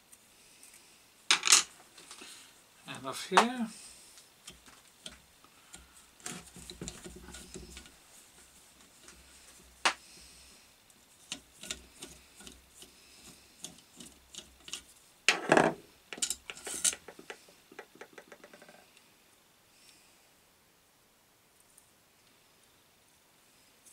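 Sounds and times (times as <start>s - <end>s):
hand tool unscrewing metal bolts: 11.2s - 14.9s
rattling metal scrape: 15.6s - 17.1s.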